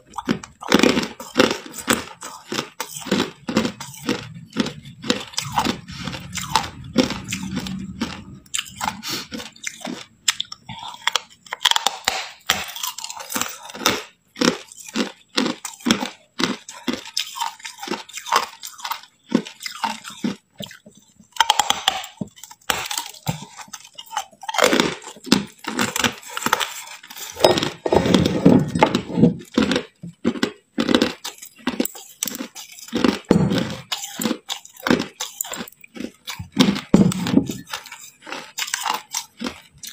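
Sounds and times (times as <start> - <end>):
person crunching ice: 0.0 - 20.8, 21.4 - 39.9.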